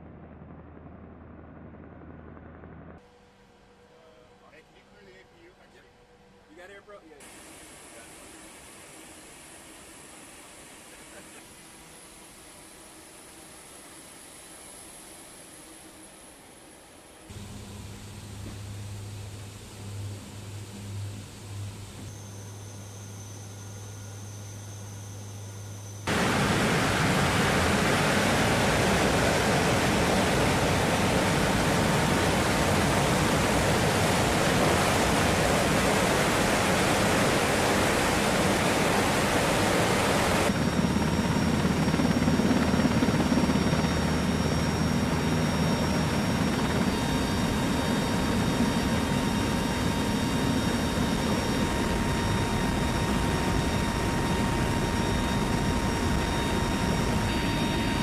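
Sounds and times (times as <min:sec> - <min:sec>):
turboprop engines roaring: 0:00.0 - 0:12.7, 0:17.2 - 0:58.0
faint whining tones: 0:00.0 - 0:58.0.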